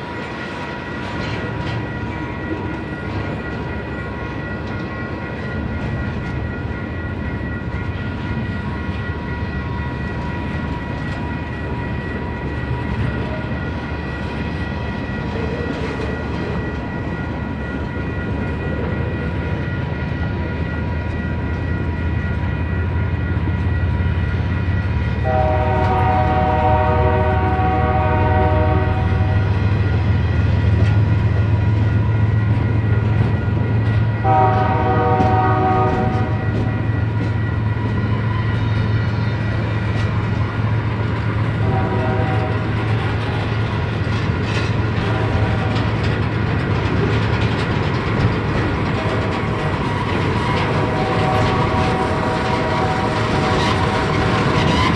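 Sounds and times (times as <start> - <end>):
train cars rumbling on rails: 0.0 - 54.9
locomotive horn blasts: 25.2 - 29.6, 34.2 - 36.7, 41.6 - 42.8, 45.0 - 46.0, 50.6 - 54.9.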